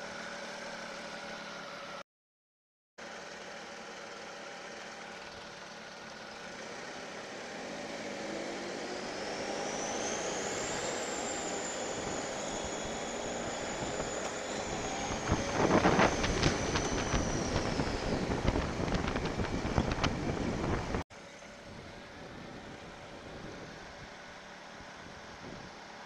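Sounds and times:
motorcycle engine: 3.0s - 21.0s
road noise: 4.9s - 26.0s
high whine: 6.6s - 21.0s.

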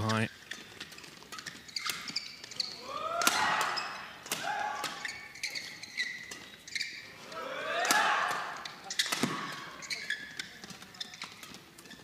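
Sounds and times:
shoes squeaking on court: 0.0s - 7.4s, 8.3s - 12.0s
racket striking shuttlecock: 3.2s - 5.1s, 7.8s - 9.8s.

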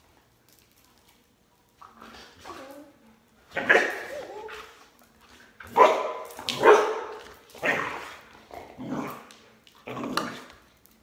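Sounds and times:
dog barking: 3.6s - 4.0s, 5.7s - 8.0s.

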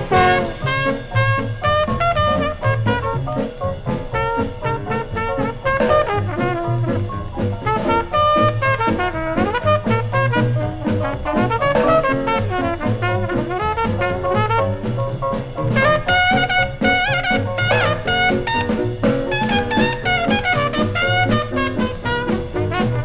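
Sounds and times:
jazz band music: 0.0s - 23.0s.

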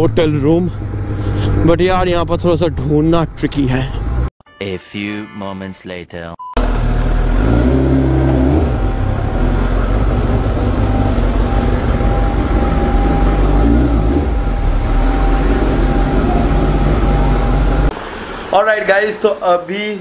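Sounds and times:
motorcycle engine low drone: 0.0s - 4.3s, 6.6s - 18.0s.

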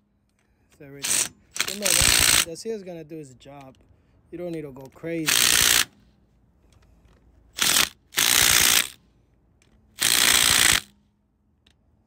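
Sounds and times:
impact driver hammering bolts: 1.0s - 2.5s, 4.9s - 6.0s, 7.6s - 9.0s, 9.6s - 11.0s.

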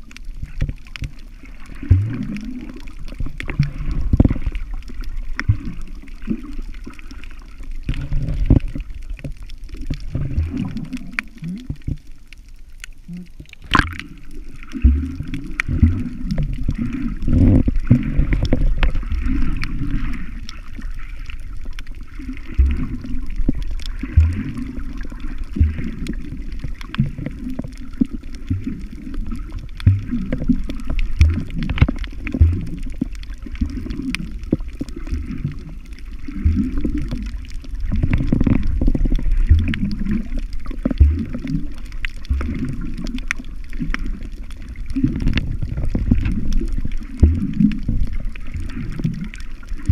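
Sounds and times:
underwater sloshing and gurgling: 0.0s - 49.9s
dull low underwater thumps: 1.9s - 2.4s, 7.9s - 9.4s, 13.6s - 14.1s, 14.8s - 20.0s, 22.5s - 27.7s, 29.6s - 41.7s, 42.3s - 43.0s, 45.0s - 49.2s.

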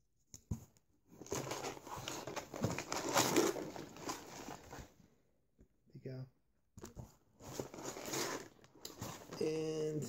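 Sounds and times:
packaging rustling and crinkling: 1.1s - 5.0s, 6.8s - 9.5s.

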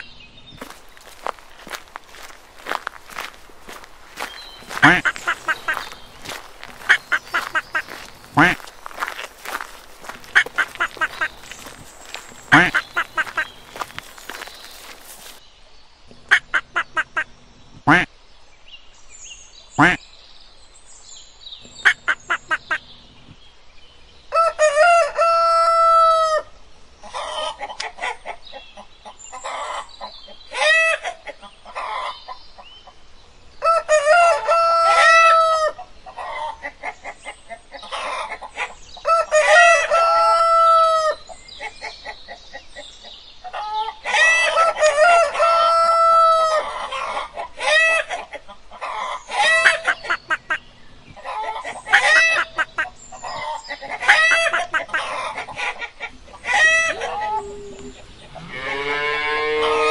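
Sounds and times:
hens clucking: 0.6s - 15.4s, 33.6s - 42.6s, 43.4s - 58.5s
rooster crowing: 24.3s - 26.4s, 33.6s - 35.8s, 39.1s - 41.2s, 44.2s - 46.7s.

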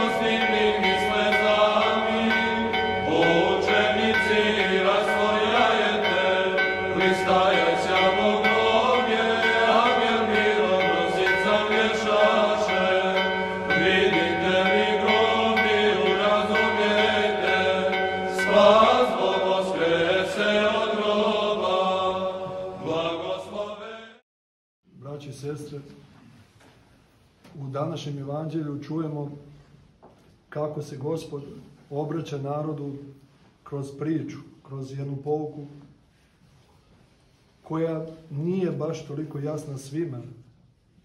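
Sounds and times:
person chanting: 0.0s - 24.2s.

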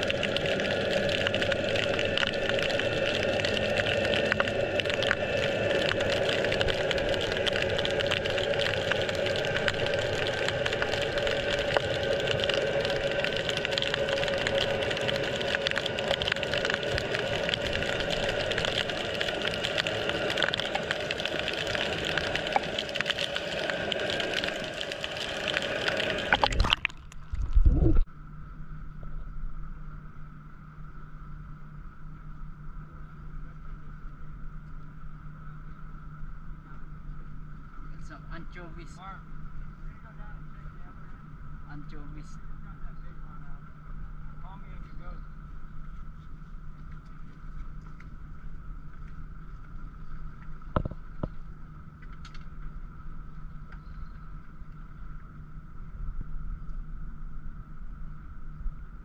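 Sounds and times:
humming tones: 0.0s - 45.4s
low steady hum: 0.0s - 59.0s
underwater noise wash: 0.0s - 59.0s
faint clicks: 48.9s - 55.3s.

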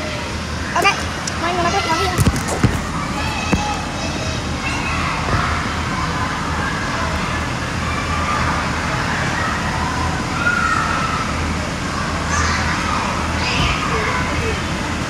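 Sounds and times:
blowers humming: 0.0s - 15.0s
children shrieking and calling: 2.9s - 15.0s.

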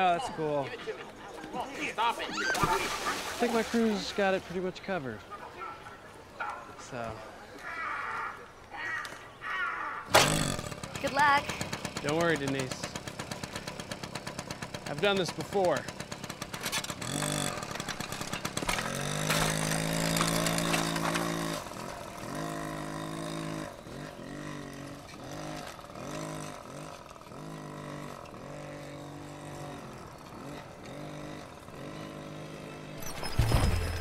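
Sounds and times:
moped engine revving: 10.1s - 34.0s.

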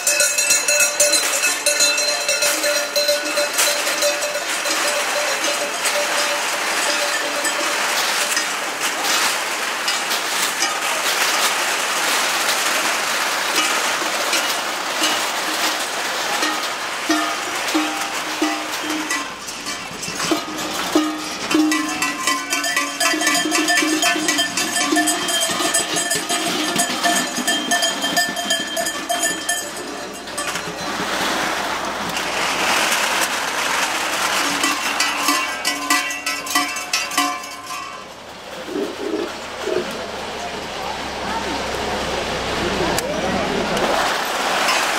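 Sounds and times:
steady ringing tones: 0.0s - 9.1s, 16.3s - 33.0s, 33.8s - 42.6s
tin cans dragged over asphalt: 0.0s - 40.4s, 43.7s - 44.9s.

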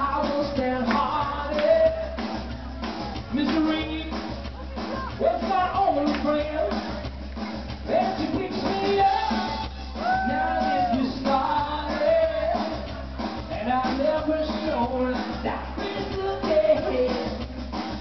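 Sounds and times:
man and woman singing duet: 0.0s - 2.3s, 7.8s - 17.8s
amplified backing music with beat: 0.0s - 18.0s.

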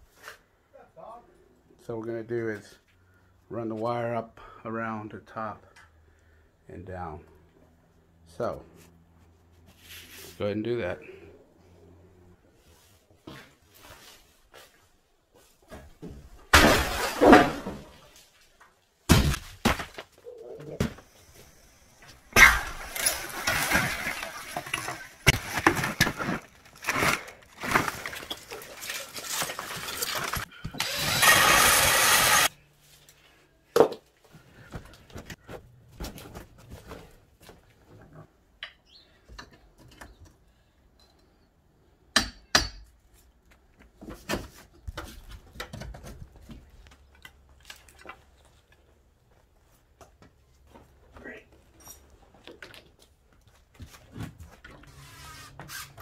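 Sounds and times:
wall cracking and crashing: 16.2s - 18.4s, 19.0s - 20.2s, 22.0s - 32.5s.

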